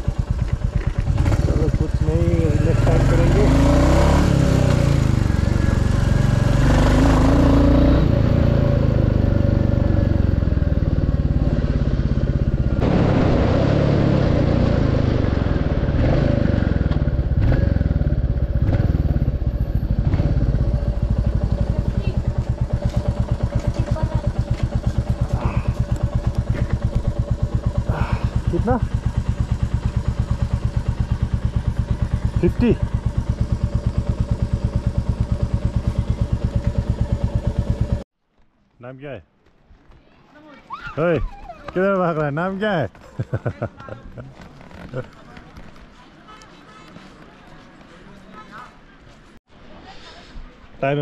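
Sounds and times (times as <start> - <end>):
motorcycle engine running: 0.0 - 13.0, 13.7 - 38.1, 42.8 - 46.1.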